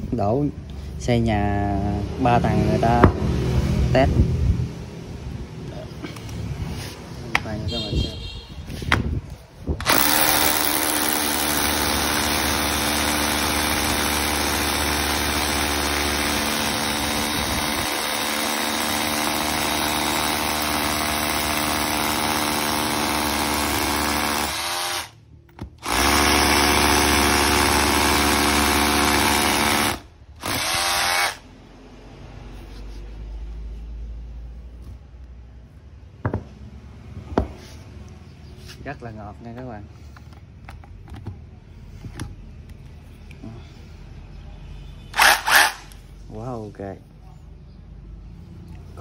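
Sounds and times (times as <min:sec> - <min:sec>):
rotary hammer drilling into concrete: 0:09.8 - 0:31.4, 0:45.2 - 0:46.0.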